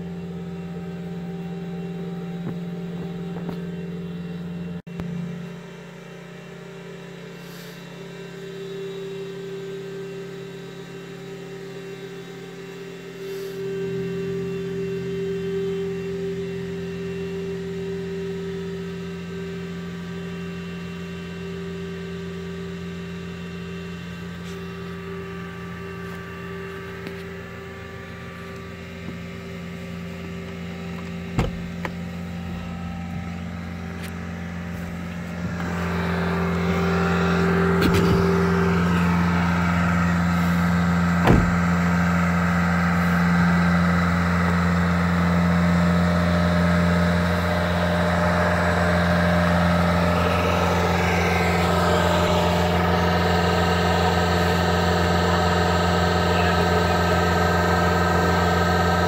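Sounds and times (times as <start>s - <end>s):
engine humming: 0.0s - 5.5s, 11.9s - 59.0s
sharp knock: 41.2s - 41.6s.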